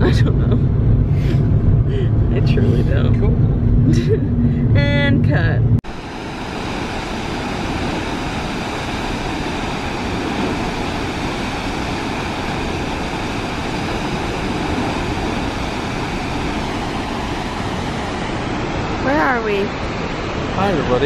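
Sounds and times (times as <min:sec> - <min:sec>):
waterfall roar: 0:05.9 - 0:21.0.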